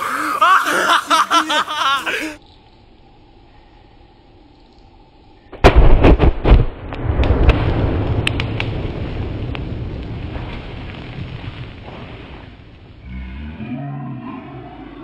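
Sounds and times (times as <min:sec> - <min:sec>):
balloons exploding: 0:05.6 - 0:12.6.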